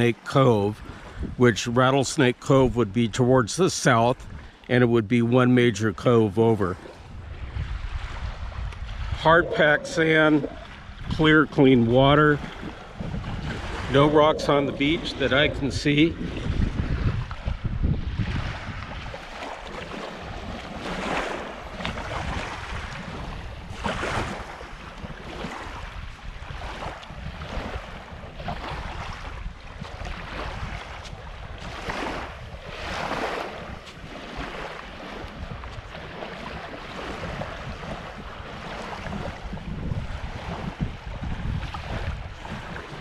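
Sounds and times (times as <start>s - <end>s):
waves lapping on sandy shore: 0.0s - 43.0s
wind rumbling on microphone: 0.7s - 1.8s, 4.0s - 4.7s, 6.5s - 43.0s.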